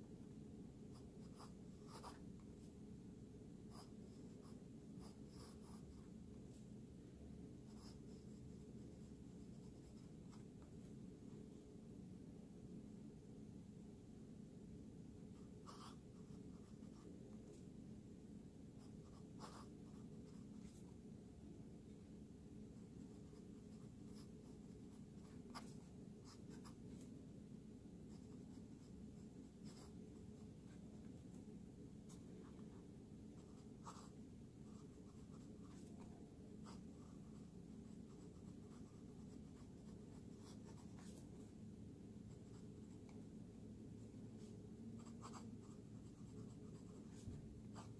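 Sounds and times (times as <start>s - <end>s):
steady low hum: 0.0s - 47.9s
fountain pen scratching on paper: 0.9s - 2.4s, 3.7s - 6.1s, 7.6s - 10.5s, 15.4s - 17.1s, 18.8s - 21.0s, 22.9s - 27.1s, 28.1s - 31.0s, 32.1s - 41.5s, 44.4s - 47.9s.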